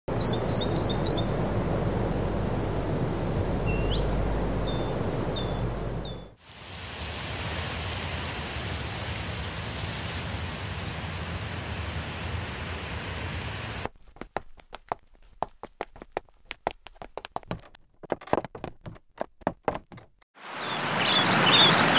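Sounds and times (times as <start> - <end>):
bird chirps: 0.1 - 1.6, 3.4 - 6.4, 20.6 - 21.9
low outdoor rumble: 0.1 - 6.4
sharp irregular taps: 14.2 - 20.2.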